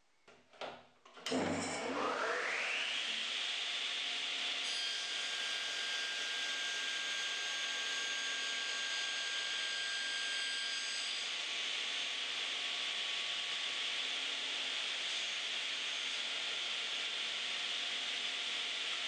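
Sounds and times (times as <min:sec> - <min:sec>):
table saw blade whirring: 0:01.3 - 0:11.4.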